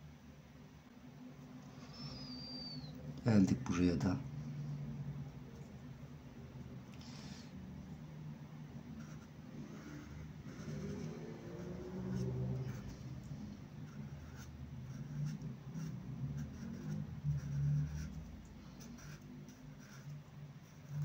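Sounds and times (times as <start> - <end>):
marker pen scratching on paper: 8.9 - 21.0.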